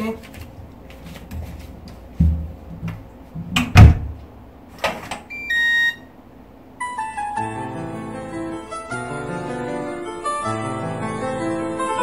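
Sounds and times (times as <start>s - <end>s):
door shutting with thump: 3.4s - 4.2s
electronic lock beep tune: 5.3s - 6.0s
soft keyboard music: 6.8s - 12.0s.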